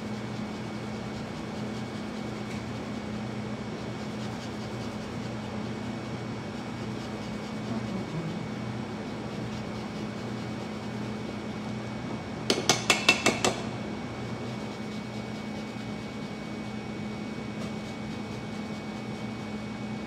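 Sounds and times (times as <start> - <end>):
steady low hum: 0.0 - 20.0
zester tapping metal bowl: 12.5 - 13.7.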